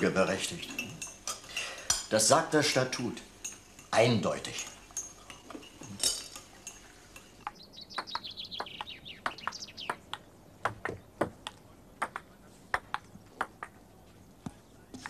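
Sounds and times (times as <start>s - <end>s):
songbird chirping: 0.0s - 15.0s
table tennis ball hits: 7.4s - 13.8s.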